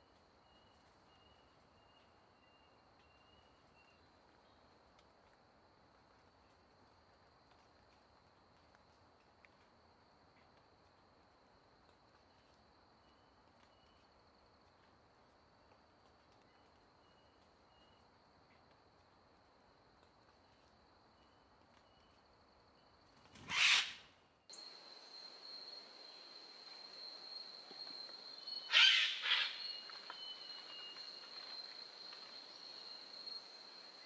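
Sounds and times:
loud animal call: 0:28.7 - 0:29.6.

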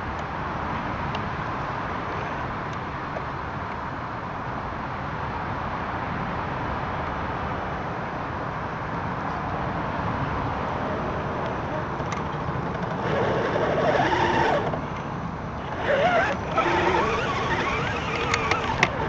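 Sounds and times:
rc truck driving on dirt: 0:11.0 - 0:19.0.

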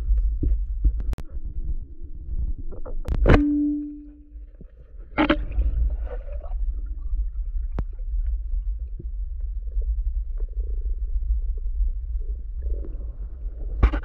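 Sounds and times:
underwater rumble of moving water: 0:00.0 - 0:14.0.

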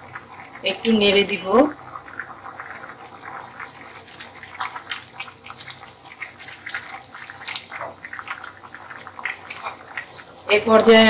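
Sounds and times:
liquid sloshing in pot: 0:01.8 - 0:10.4.

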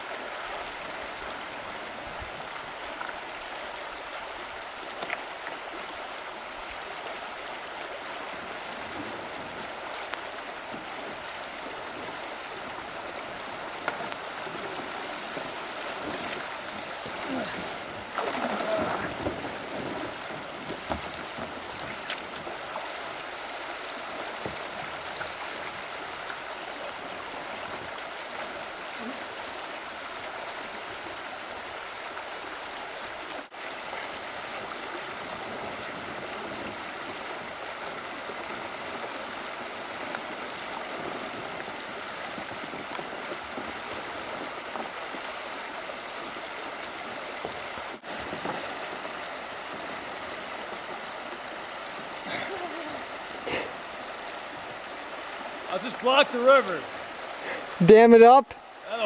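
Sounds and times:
shallow river rapids over rocks: 0:00.0 - 0:59.0.

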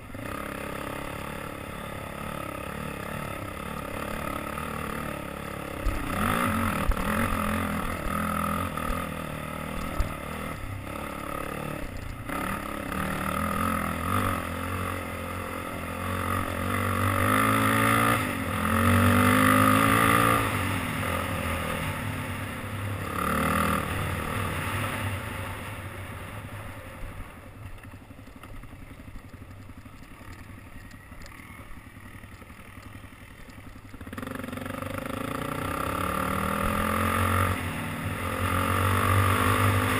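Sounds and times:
quad engine revving: 0:00.1 - 0:25.8, 0:34.0 - 0:39.9.

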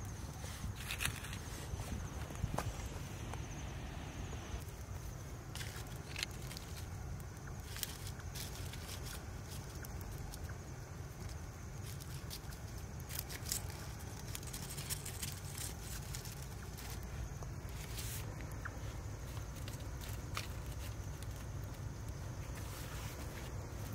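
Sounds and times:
small fire crackling and popping: 0:00.0 - 0:23.9
steady low rumble: 0:00.0 - 0:23.9.

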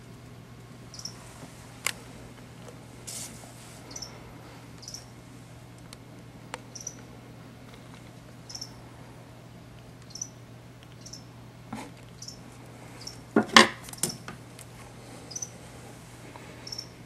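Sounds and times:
mouse squeaking: 0:00.9 - 0:01.2, 0:03.9 - 0:04.2, 0:04.8 - 0:05.1, 0:06.7 - 0:07.1, 0:08.5 - 0:08.8, 0:10.0 - 0:10.4, 0:11.0 - 0:11.3, 0:12.2 - 0:12.4, 0:15.3 - 0:15.6, 0:16.6 - 0:17.0.

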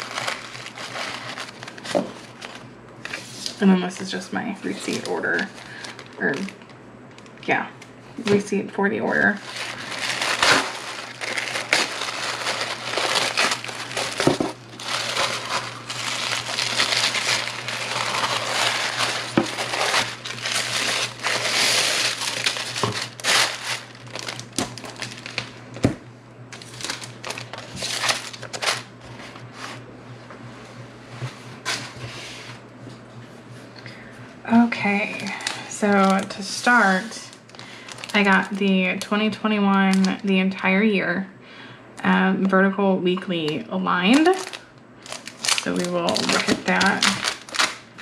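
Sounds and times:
tissue paper crinkling: 0:00.0 - 0:03.7, 0:04.6 - 0:07.4, 0:09.3 - 0:25.6, 0:26.5 - 0:29.8, 0:34.8 - 0:39.0, 0:44.1 - 0:48.0.

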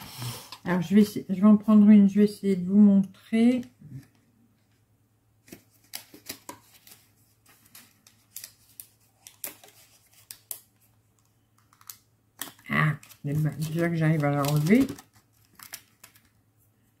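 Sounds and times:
plastic packaging clicking and crackling: 0:05.4 - 0:16.4.

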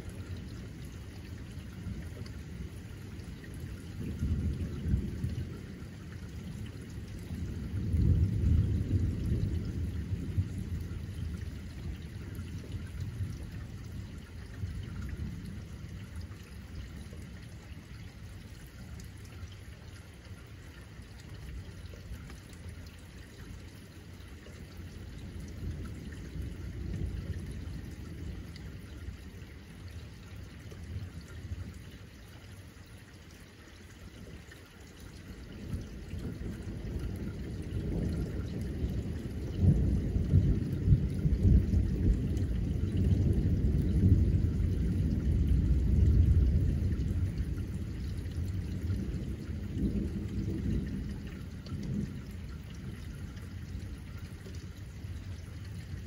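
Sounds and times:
steady rain: 0:00.0 - 0:56.0
thunder rumbling: 0:03.6 - 0:16.3, 0:35.6 - 0:56.0.

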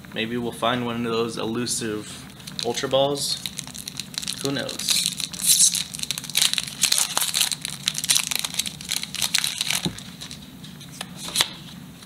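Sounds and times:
foil wrapper crinkling: 0:02.3 - 0:10.5.

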